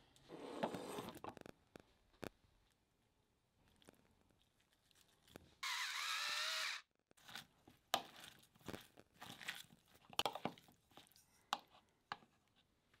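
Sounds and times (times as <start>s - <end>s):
pepper grinder whirring: 5.6s - 6.9s.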